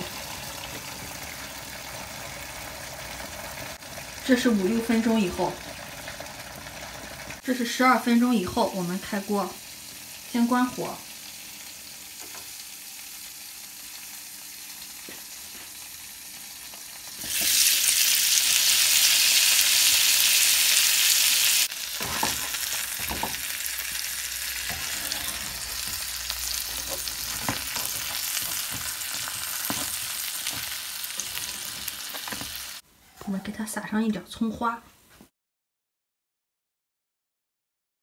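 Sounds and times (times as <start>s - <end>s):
buns sizzling in frying pan: 0.0s - 32.8s
turner scraping pan: 21.9s - 33.4s.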